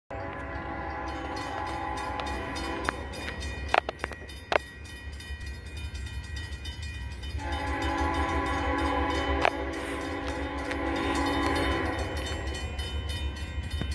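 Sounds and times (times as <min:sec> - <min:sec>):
locomotive horn blast: 0:00.1 - 0:03.3, 0:07.4 - 0:12.6.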